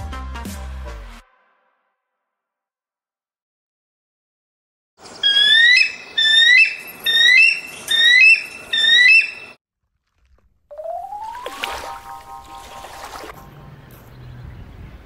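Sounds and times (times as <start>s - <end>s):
gull harsh cries: 5.2s - 9.6s.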